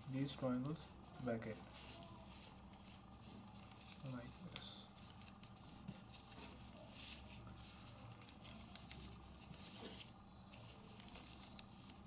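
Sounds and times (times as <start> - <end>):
paper rustling and creasing: 0.2 - 12.0.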